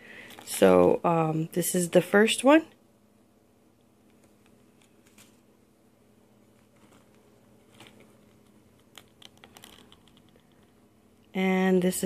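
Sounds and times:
card tags tapping and rustling: 0:06.6 - 0:10.8.

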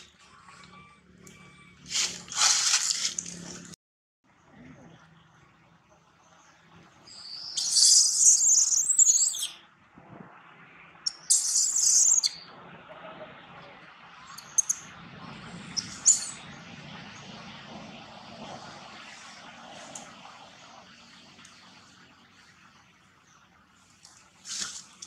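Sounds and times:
faint outdoor background: 0:00.0 - 0:25.0
birds chirping: 0:04.8 - 0:09.6, 0:11.1 - 0:17.4.

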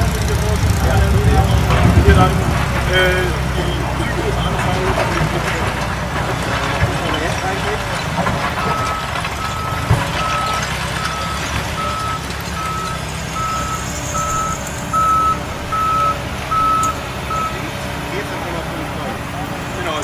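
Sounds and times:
diesel engines running: 0:00.0 - 0:20.0
backup alarm beeping: 0:08.6 - 0:17.6.

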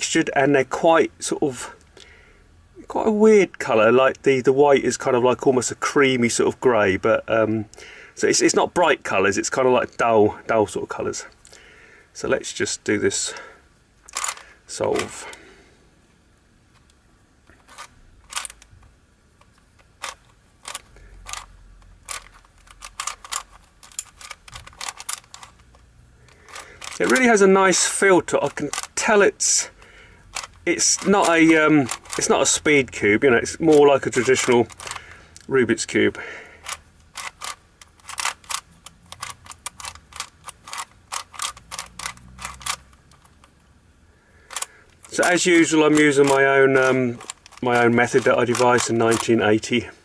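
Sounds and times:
puzzle cube clicking: 0:14.1 - 0:15.2, 0:17.7 - 0:18.8, 0:19.4 - 0:27.4, 0:28.2 - 0:29.4, 0:30.3 - 0:32.7, 0:33.5 - 0:35.5, 0:36.6 - 0:43.6, 0:44.4 - 0:49.4.

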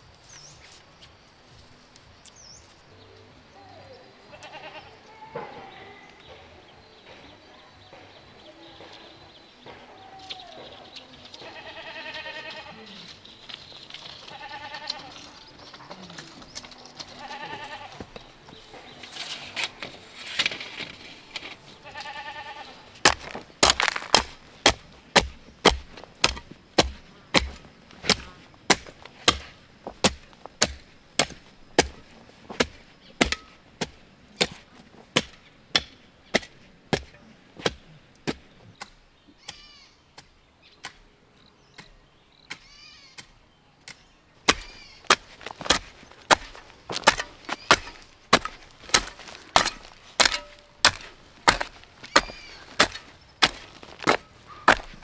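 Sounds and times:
farm animal bleating: 0:04.2 - 0:06.1, 0:11.2 - 0:13.2, 0:14.2 - 0:18.1, 0:21.8 - 0:23.0, 0:39.4 - 0:40.0, 0:42.6 - 0:43.2.

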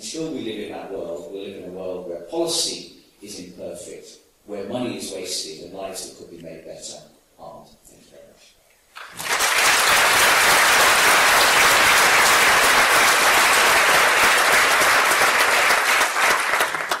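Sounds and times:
audience applauding: 0:09.0 - 0:17.0.

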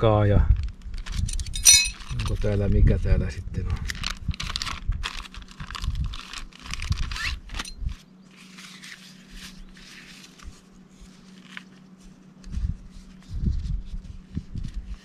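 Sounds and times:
fabric rustling and crinkling: 0:03.9 - 0:15.0.

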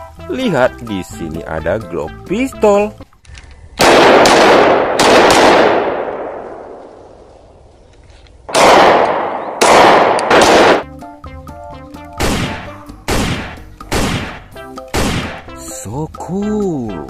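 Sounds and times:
pistol shots echoing: 0:03.8 - 0:07.2, 0:08.5 - 0:10.9, 0:12.2 - 0:15.5.

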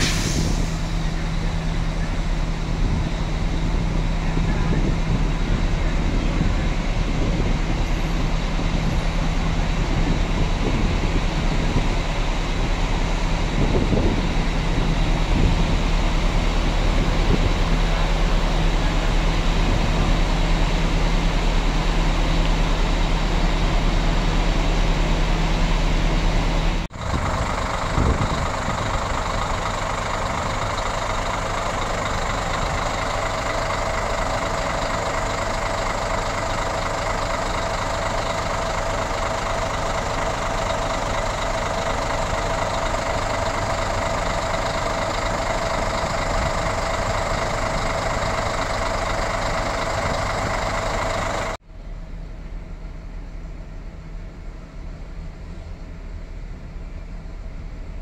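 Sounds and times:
coach engine drone with tone: 0:00.0 - 0:58.0
diesel bus engine idling: 0:00.0 - 0:58.0.

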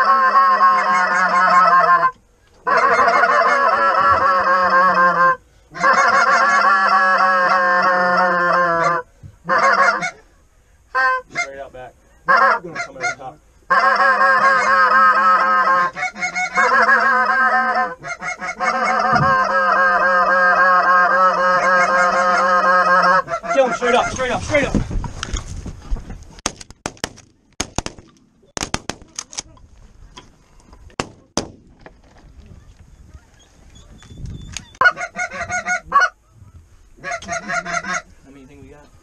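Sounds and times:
goose honking and clucking: 0:00.0 - 0:10.3, 0:10.9 - 0:24.4, 0:34.6 - 0:38.2.

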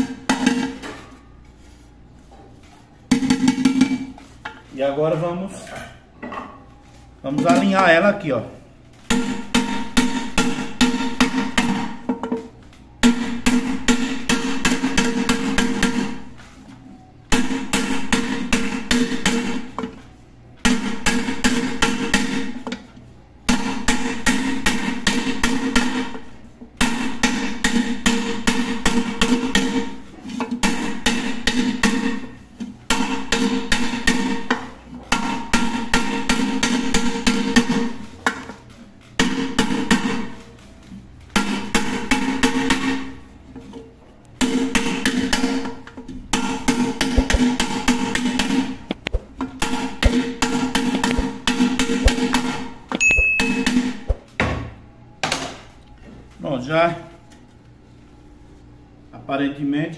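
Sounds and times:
hammer blows on metal pot: 0:53.0 - 0:54.2.

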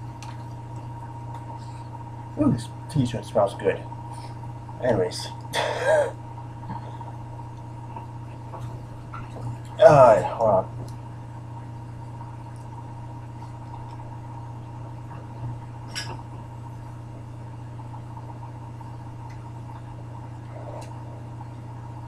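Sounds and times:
faint clicks and rustles: 0:00.0 - 0:02.0
electrical hum and hiss: 0:00.0 - 0:22.0.

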